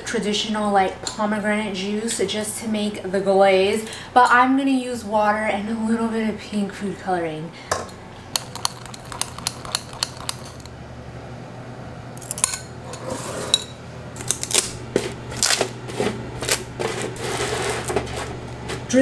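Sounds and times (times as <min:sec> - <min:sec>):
utensil clinking glass cup: 0:08.4 - 0:10.7.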